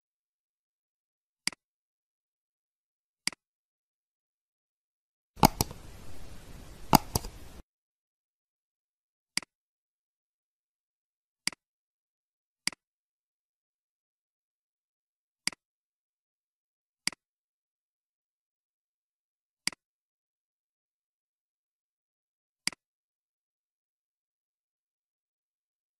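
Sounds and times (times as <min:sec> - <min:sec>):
computer mouse clicks: 0:05.4 - 0:07.6
short hissy sound with click: 0:05.4 - 0:07.6.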